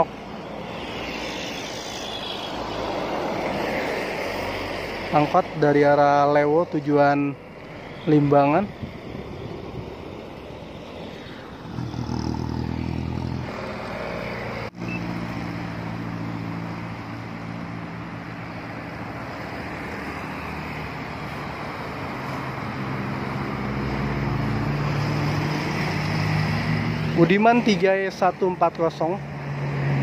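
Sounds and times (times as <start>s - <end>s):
vehicle engine passing: 7.7s - 30.0s.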